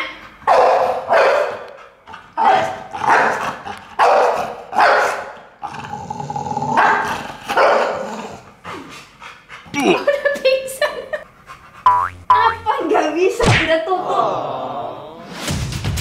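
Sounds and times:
dog barking and grumbling: 2.3s - 5.9s, 6.5s - 8.8s.

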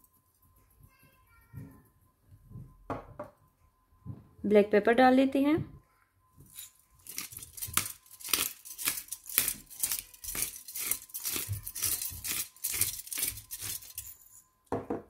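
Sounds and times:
pepper grinder grinding: 6.5s - 14.4s.

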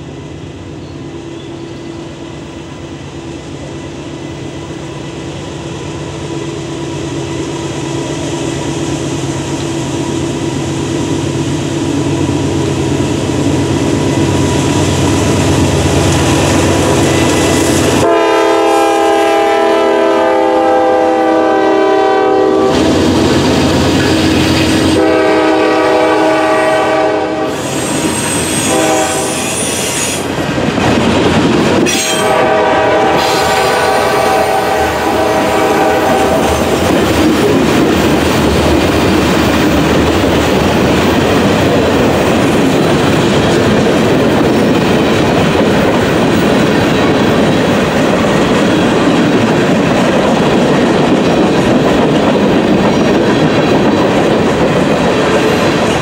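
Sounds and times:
freight cars rumbling on rails: 0.0s - 56.0s
locomotive horn blasts: 17.0s - 23.0s, 24.1s - 29.9s, 31.9s - 36.7s.

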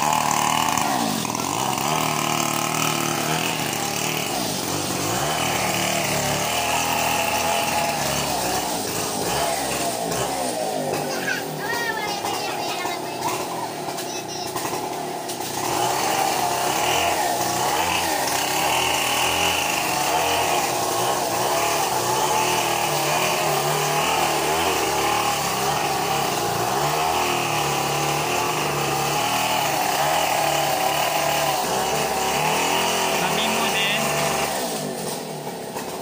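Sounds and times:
chainsaw engine running: 0.0s - 36.0s.

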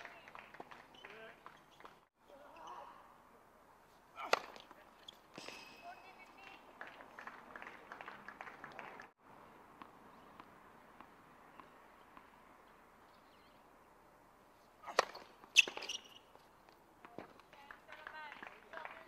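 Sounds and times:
tennis racket hitting ball: 4.2s - 4.7s, 14.8s - 16.0s.

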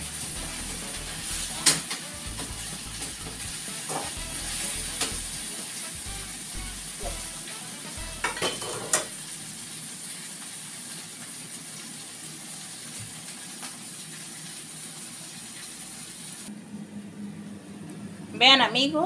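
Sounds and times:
food sizzling in a pan: 0.0s - 16.5s
utensil clattering on cookware: 8.2s - 9.1s.

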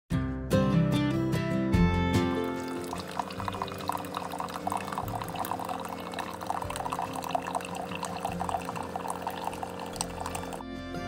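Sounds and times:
coffee maker humming: 2.4s - 10.6s
coffee splashing into mug: 2.5s - 10.6s.

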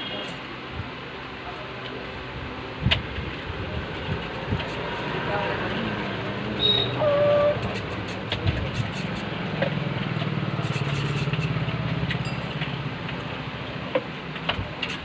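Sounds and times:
coil winding machine rattling: 10.0s - 12.8s.

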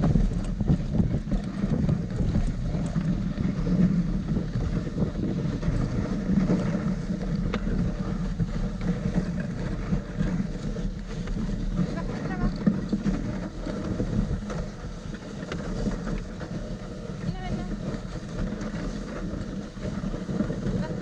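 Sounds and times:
sled runners scraping over snow: 0.0s - 21.0s
wind buffeting microphone: 0.0s - 21.0s.

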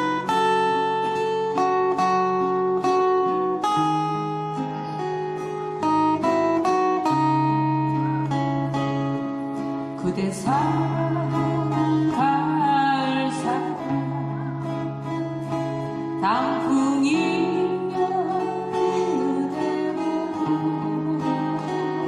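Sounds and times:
acoustic guitars playing: 0.0s - 22.0s
person singing: 5.8s - 22.0s.

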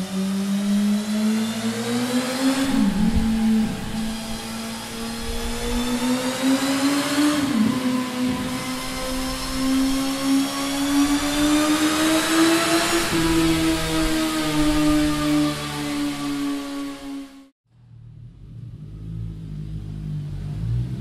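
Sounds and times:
motorcycle engine revving high: 0.0s - 17.5s.

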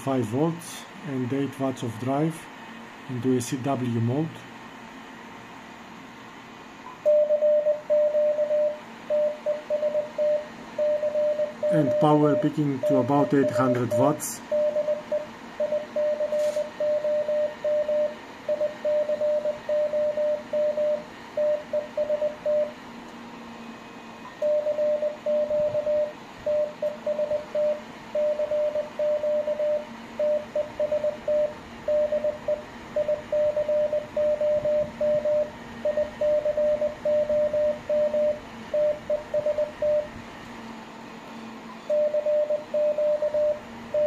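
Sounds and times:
faint steady hum: 0.0s - 44.0s
morse code tone: 7.0s - 22.8s, 24.4s - 40.1s, 41.9s - 44.0s.

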